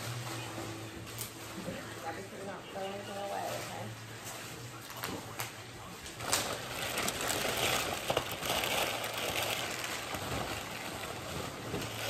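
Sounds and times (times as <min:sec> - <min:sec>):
plastic bag rustling: 0:00.0 - 0:12.0
wrapping paper rustling and crackling: 0:00.0 - 0:12.0.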